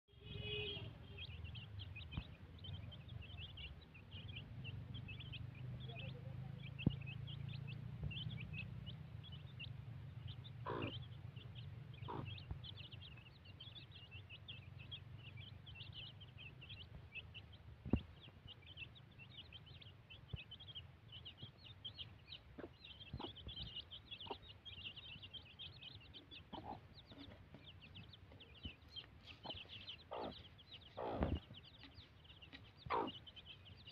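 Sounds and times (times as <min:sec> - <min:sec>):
chicks peeping: 0:00.2 - 0:33.9
hen clucking: 0:01.2 - 0:33.9.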